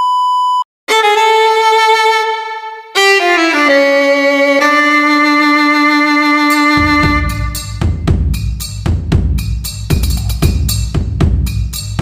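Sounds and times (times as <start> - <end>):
short steady beep: 0.0 - 0.6
violin playing long held notes: 0.9 - 7.8.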